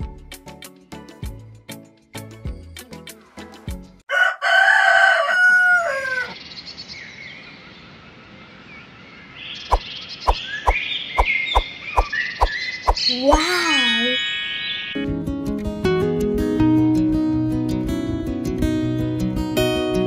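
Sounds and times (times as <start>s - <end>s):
rooster crowing: 4.1s - 6.4s
small birds chirping: 6.3s - 15.0s.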